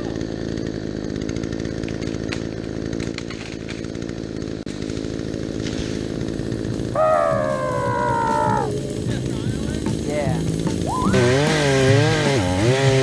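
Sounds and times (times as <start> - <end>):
chainsaw engine running: 0.0 - 13.0.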